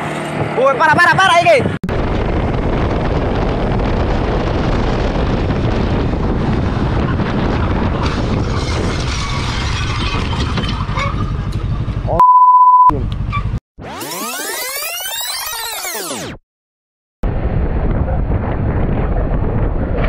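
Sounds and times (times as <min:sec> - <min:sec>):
wind rushing over microphone: 0:00.0 - 0:11.0, 0:17.2 - 0:20.0
motorcycle running: 0:00.0 - 0:12.2
censor bleep: 0:12.1 - 0:13.1.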